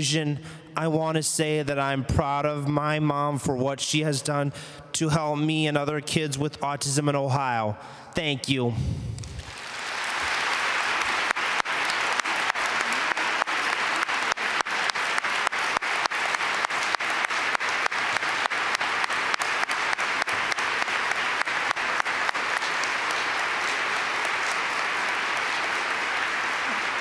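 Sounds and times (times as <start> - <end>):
large audience applauding: 9.2 - 27.0.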